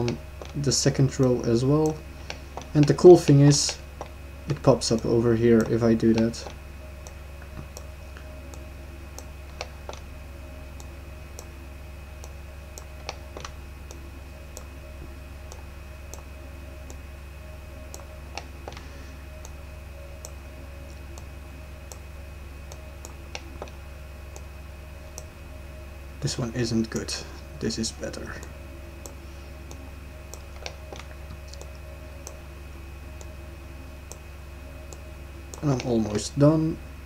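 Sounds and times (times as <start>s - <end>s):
low electrical hum: 0.0s - 37.0s
computer mouse clicking: 3.6s - 10.1s, 12.2s - 14.7s, 17.9s - 19.6s, 22.7s - 24.5s, 28.4s - 32.4s.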